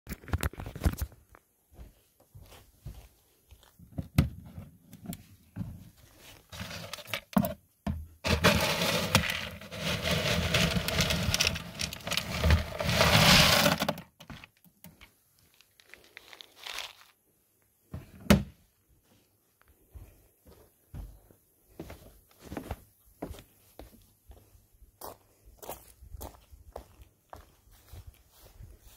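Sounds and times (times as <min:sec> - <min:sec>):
footsteps on wooden deck: 0:01.7 - 0:04.6, 0:19.8 - 0:28.9
corn kernels rattling: 0:06.5 - 0:07.4, 0:08.2 - 0:14.0, 0:15.6 - 0:17.1.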